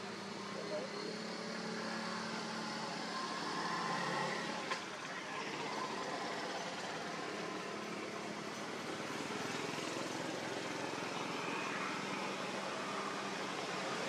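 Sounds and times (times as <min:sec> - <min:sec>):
vehicle engine humming: 0:00.0 - 0:14.0.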